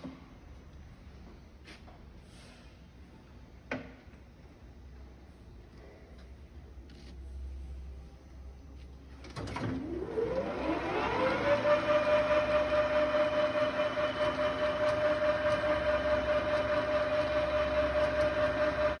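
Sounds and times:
lathe whine rising in pitch: 0:09.9 - 0:19.0.

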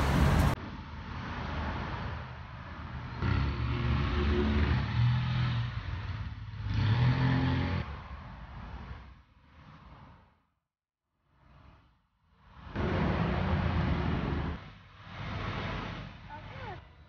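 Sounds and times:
vehicles accelerating past: 0:00.0 - 0:10.2.

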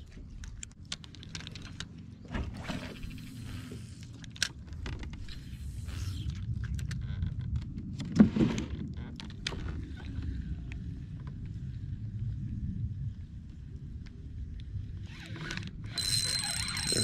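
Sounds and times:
low steady rumble: 0:00.0 - 0:17.0
fishing tackle clicks and rattles: 0:00.3 - 0:02.1, 0:04.0 - 0:05.2, 0:15.4 - 0:17.0.

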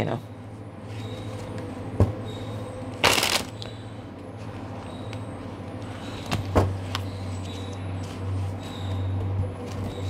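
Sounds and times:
steady low hum: 0:00.0 - 0:10.0
cards riffling: 0:03.0 - 0:03.6.

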